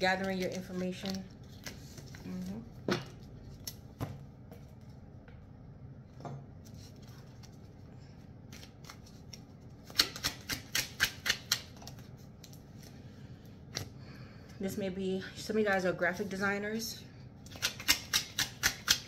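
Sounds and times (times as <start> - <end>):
cards being shuffled: 8.5 - 12.9.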